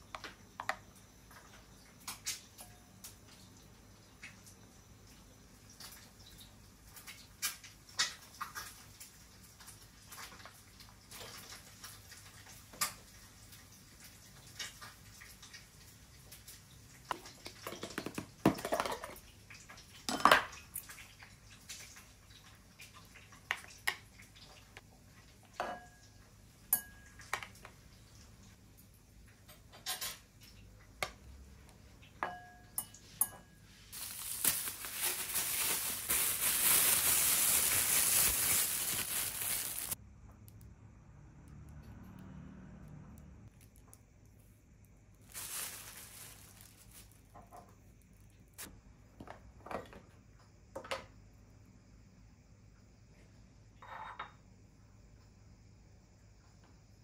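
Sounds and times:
plastic bag crinkling: 0:33.9 - 0:40.0, 0:45.2 - 0:47.4.

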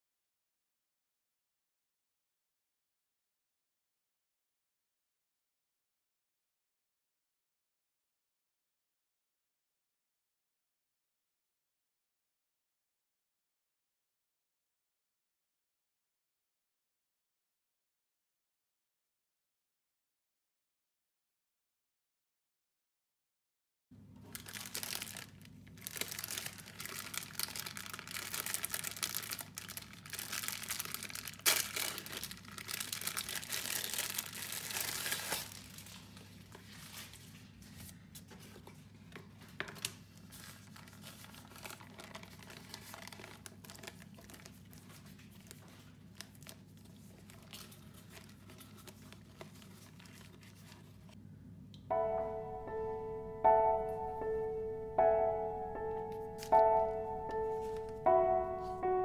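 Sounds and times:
plastic packaging crinkling and tearing: 0:24.2 - 0:37.4, 0:39.5 - 0:51.2
paper rustling: 0:24.2 - 0:51.2, 0:56.1 - 0:58.0.

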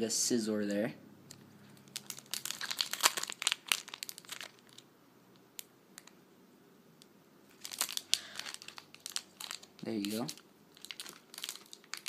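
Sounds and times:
foil wrapper crinkling: 0:01.8 - 0:04.9, 0:07.5 - 0:12.0.

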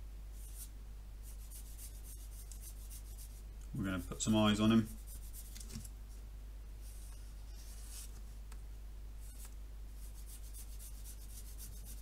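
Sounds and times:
marker scratching on paper: 0:00.4 - 0:03.4, 0:04.6 - 0:05.8, 0:09.2 - 0:12.0.

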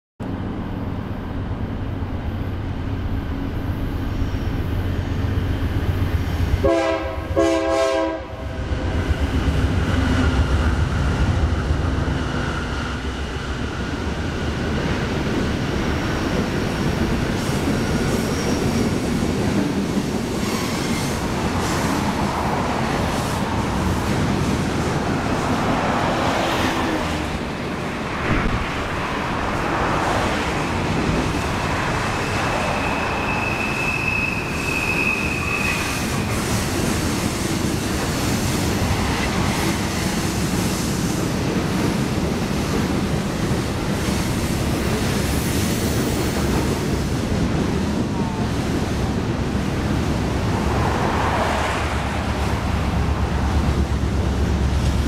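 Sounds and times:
diesel locomotive rumble: 0:00.3 - 0:55.0
train wheels clattering on rail: 0:08.8 - 0:55.0
high wheel squeal: 0:17.6 - 0:19.0, 0:32.0 - 0:36.6.

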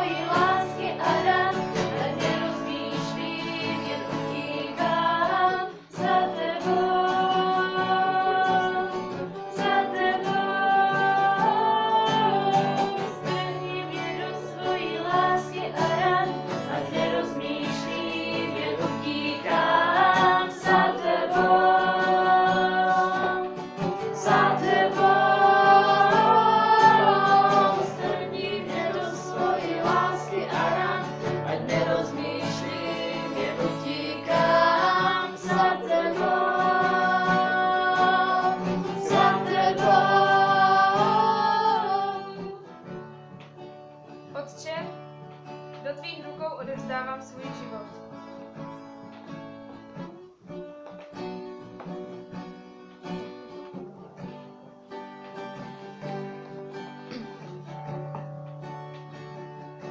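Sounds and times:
youth choir singing: 0:00.0 - 0:42.8
guitar accompaniment: 0:00.0 - 0:59.9.

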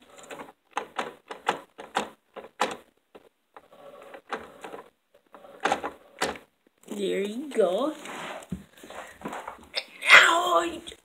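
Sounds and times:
plastic toy parts clicking: 0:00.1 - 0:06.5.

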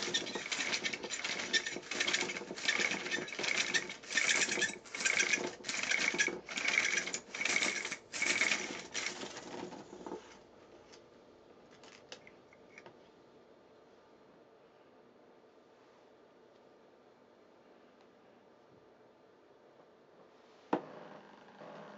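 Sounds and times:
plastic spiral clicking: 0:00.0 - 0:09.9.

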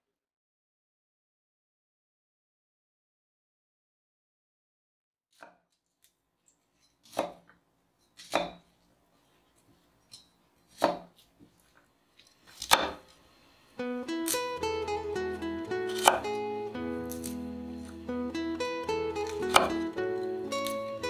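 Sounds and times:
knife chopping on wooden board: 0:07.0 - 0:07.5, 0:08.2 - 0:08.7, 0:10.7 - 0:11.3, 0:12.5 - 0:13.1, 0:15.9 - 0:16.4, 0:17.1 - 0:18.0, 0:19.2 - 0:20.8
plucked acoustic guitar music: 0:13.8 - 0:21.0.

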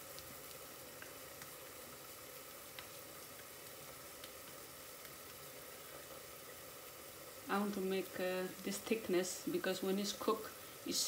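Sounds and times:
faint kitchen hiss: 0:00.0 - 0:11.0.

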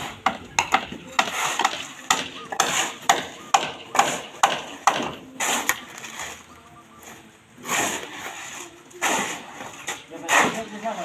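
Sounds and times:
hoe striking soil and rubble: 0:00.0 - 0:06.4, 0:07.6 - 0:11.0
shovel scraping through gravel: 0:05.3 - 0:06.5, 0:07.1 - 0:11.0.

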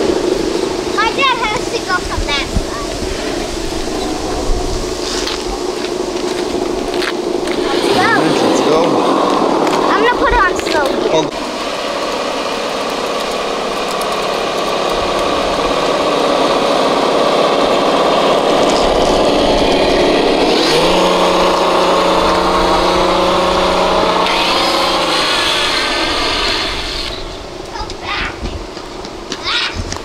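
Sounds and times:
toy truck electric motor whining: 0:11.8 - 0:27.4.

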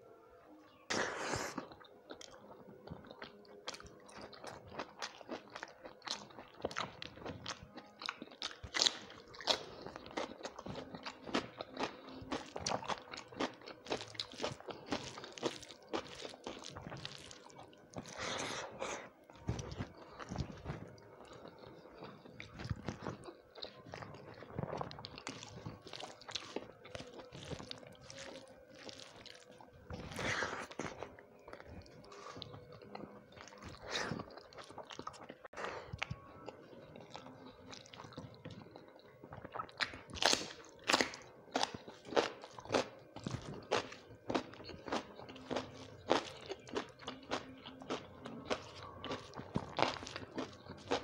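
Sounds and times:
person chewing with mouth open: 0:00.9 - 0:51.0
wet smacks and crunchy bites: 0:39.5 - 0:51.0.

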